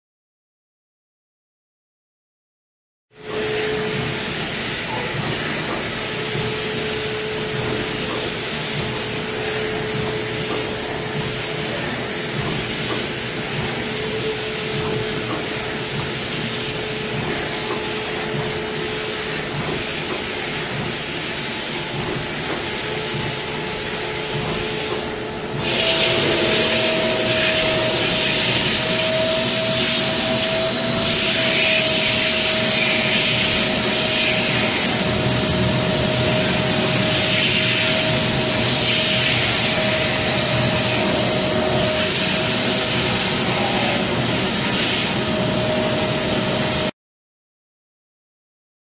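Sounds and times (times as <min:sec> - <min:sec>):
steam hiss: 0:03.2 - 0:35.4, 0:36.2 - 0:45.2
steam vacuum motor whine: 0:03.2 - 0:46.9.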